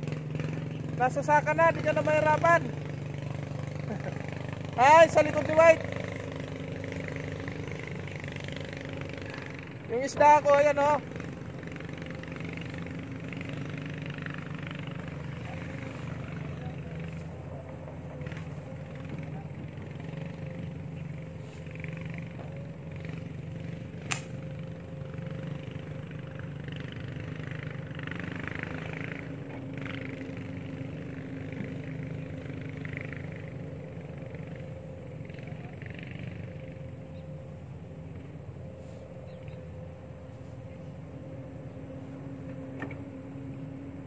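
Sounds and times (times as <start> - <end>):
distant motor humming: 0.0 - 44.0
sharp click: 24.1 - 24.3.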